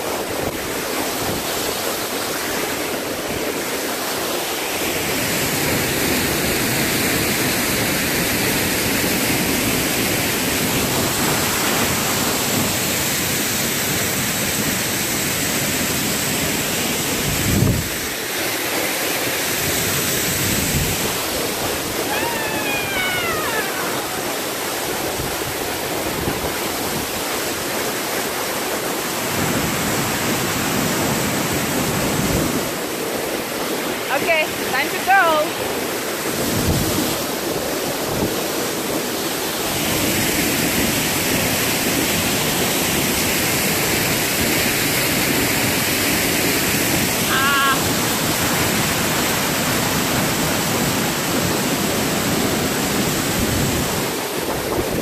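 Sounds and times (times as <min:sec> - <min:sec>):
waterfall rushing: 0:00.0 - 0:55.0
short falling pitched call: 0:22.1 - 0:24.3.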